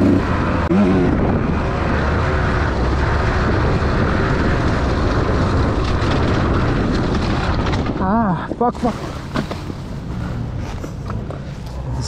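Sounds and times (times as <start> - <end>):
rush of riding noise: 0.0 - 12.0.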